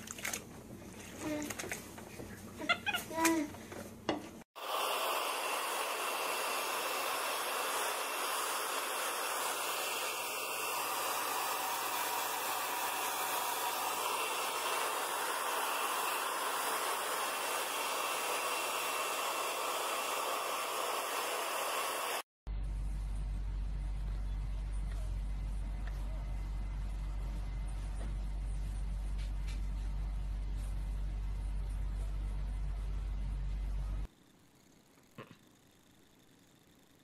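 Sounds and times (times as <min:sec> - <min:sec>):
hair dryer blowing: 0:04.5 - 0:22.3.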